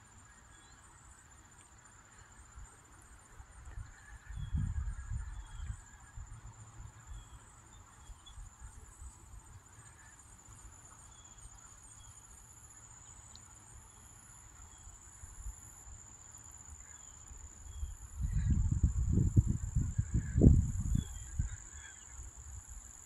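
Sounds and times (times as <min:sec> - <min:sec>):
insects trilling: 0:00.1 - 0:23.0
wind rumble on microphone: 0:03.5 - 0:07.3, 0:17.6 - 0:22.8.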